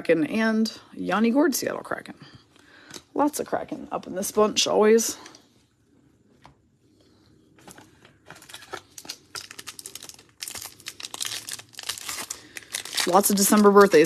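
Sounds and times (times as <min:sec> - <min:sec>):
foil wrapper crinkling and tearing: 0:08.3 - 0:14.0.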